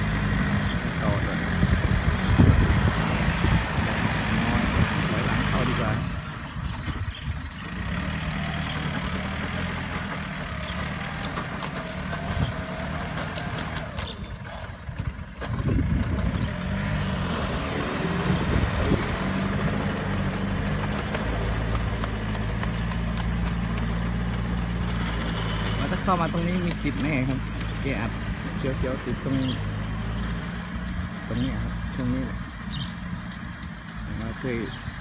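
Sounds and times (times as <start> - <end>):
tractor diesel engine running: 0.0 - 35.0
tiller clattering and knocking: 8.6 - 16.8, 17.7 - 29.5, 30.7 - 35.0.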